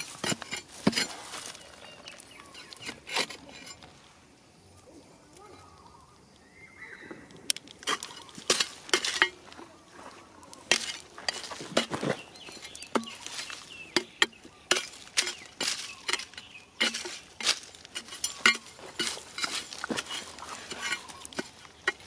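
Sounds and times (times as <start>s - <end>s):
metal tool striking stony soil: 0.0s - 1.8s, 7.8s - 9.6s, 10.6s - 22.0s
earth and pebbles scraping: 0.0s - 5.8s, 6.9s - 22.0s.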